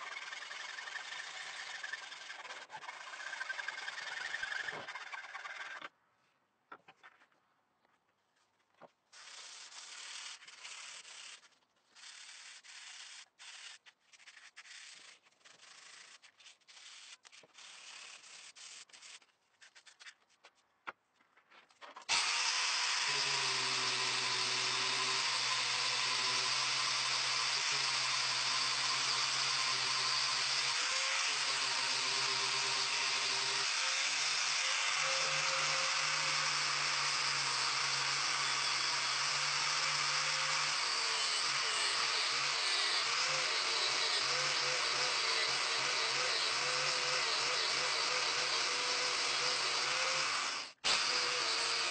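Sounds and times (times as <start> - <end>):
sanding and scraping wood: 0.0 - 5.9, 9.1 - 20.7
angle grinder running: 22.1 - 51.9.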